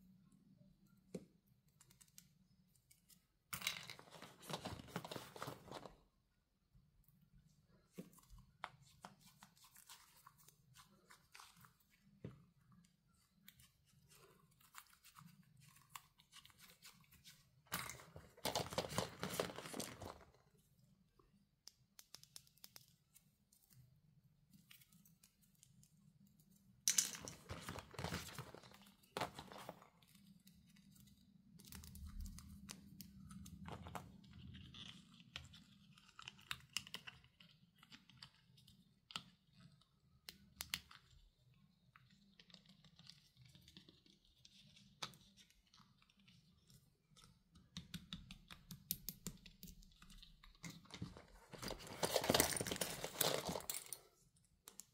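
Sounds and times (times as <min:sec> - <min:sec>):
plastic packaging rustling: 0:03.9 - 0:06.0, 0:17.9 - 0:20.2, 0:51.0 - 0:53.9.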